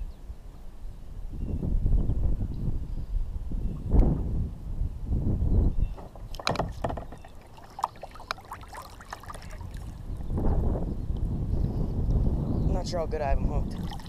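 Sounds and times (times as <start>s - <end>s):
wind rumbling on microphone: 0.0s - 14.0s
water lapping against a kayak: 6.0s - 10.6s, 13.6s - 14.0s.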